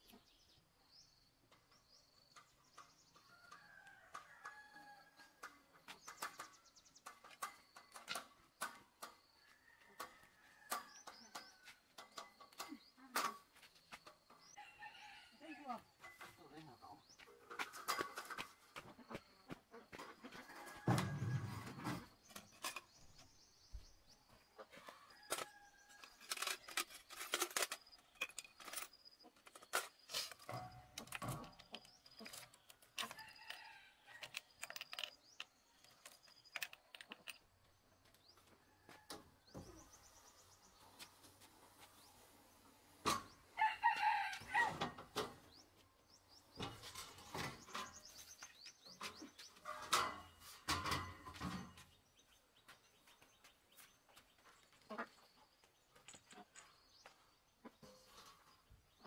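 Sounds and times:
metal tool parts clicking: 0:26.0 - 0:33.6, 0:34.2 - 0:37.4.

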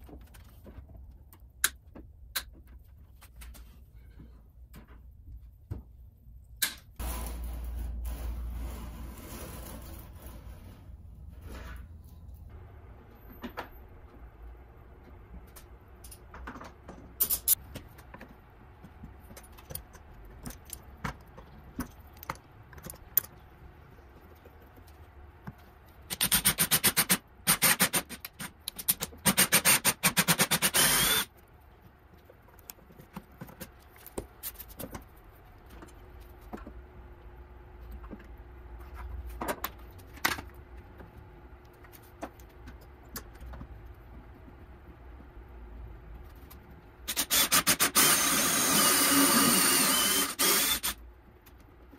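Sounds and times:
tools clicking and knocking: 0:15.5 - 0:18.3
cordless drill boring wood: 0:29.4 - 0:31.3, 0:47.2 - 0:51.0.

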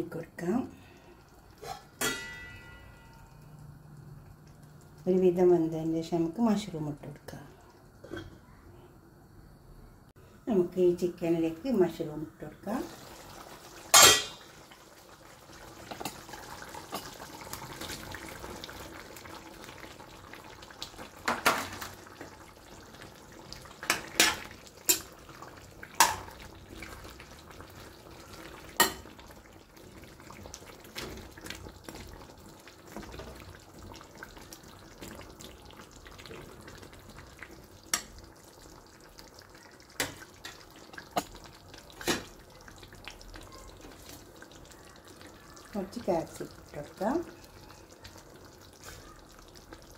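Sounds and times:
gravy sizzling softly: 0:00.0 - 0:49.9
ladle clanking against metal pot: 0:01.6 - 0:03.0, 0:13.9 - 0:14.4.

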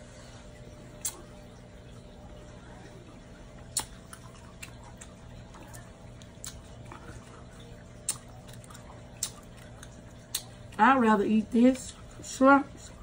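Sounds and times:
faint steady hum: 0:00.0 - 0:13.0
wet clicks of shrimp peeling: 0:01.0 - 0:01.3, 0:03.7 - 0:07.0, 0:08.0 - 0:10.8.

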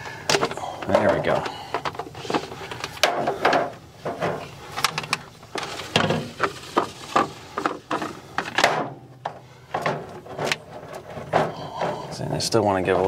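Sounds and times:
plastic rubbing on plastic: 0:04.0 - 0:08.5.

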